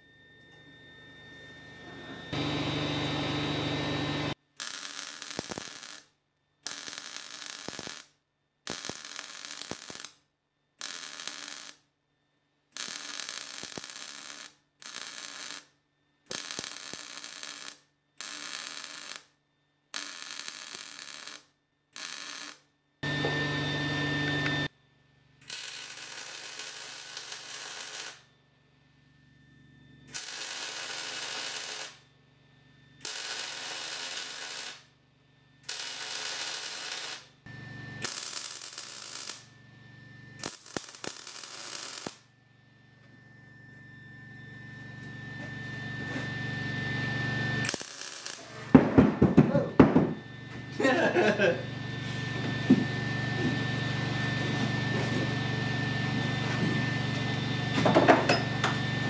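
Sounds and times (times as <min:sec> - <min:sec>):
welding arc crackling: 0:04.5 - 0:08.1, 0:08.7 - 0:10.2, 0:10.8 - 0:11.8, 0:12.8 - 0:15.7, 0:16.3 - 0:19.3, 0:19.9 - 0:22.6, 0:25.4 - 0:28.2, 0:30.1 - 0:32.0, 0:33.0 - 0:34.9, 0:35.6 - 0:37.3, 0:38.0 - 0:39.5, 0:40.4 - 0:42.2, 0:47.6 - 0:49.0.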